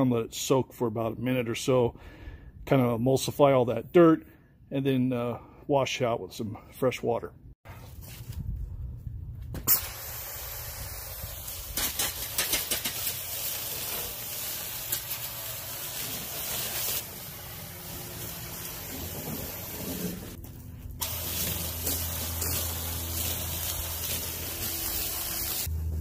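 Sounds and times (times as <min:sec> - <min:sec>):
foam sprayer hissing: 0:09.6 - 0:26.0.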